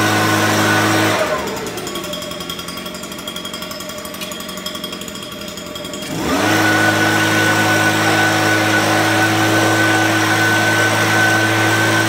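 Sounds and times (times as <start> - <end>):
leaf blower engine revving: 0.0 - 12.0.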